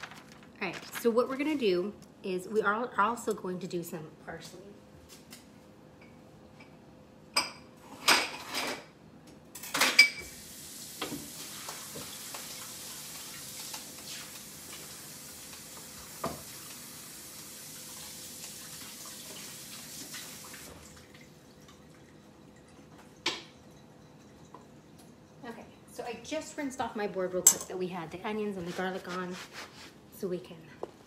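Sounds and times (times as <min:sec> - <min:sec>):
kitchen tap running: 0:10.2 - 0:25.5.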